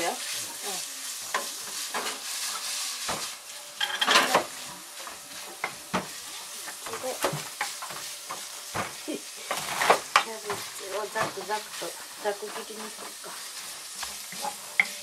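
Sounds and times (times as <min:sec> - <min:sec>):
meat sizzling in a frying pan: 0:00.0 - 0:15.0
wooden spatula scraping: 0:04.2 - 0:15.0.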